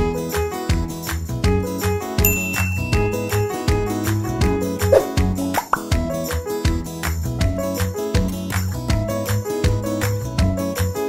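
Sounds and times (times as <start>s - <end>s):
upbeat music with plucked strings: 0.0s - 11.0s.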